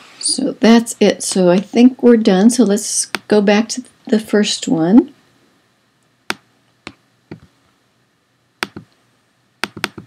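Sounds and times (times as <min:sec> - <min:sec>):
computer mouse clicks: 0:08.6 - 0:09.0, 0:09.6 - 0:10.0.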